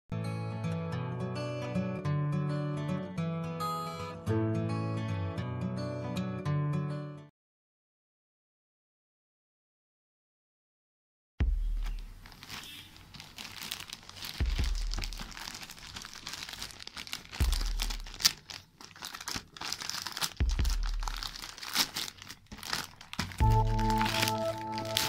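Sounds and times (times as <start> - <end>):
plastic bag crinkling and tearing: 11.8 - 25.0.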